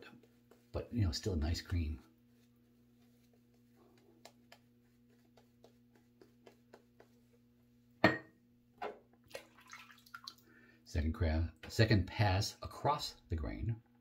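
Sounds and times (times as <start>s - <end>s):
shaving brush strokes: 0.0s - 7.8s.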